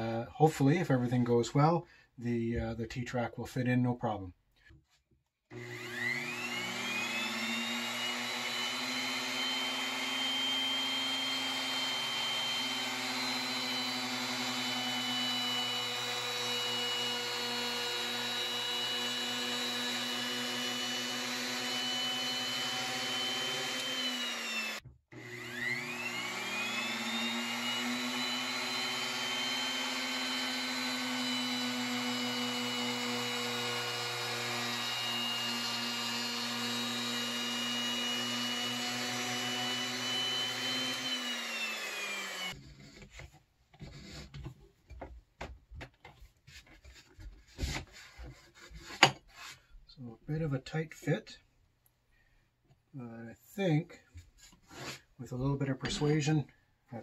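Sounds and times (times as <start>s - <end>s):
router high whine: 5.5s - 42.6s.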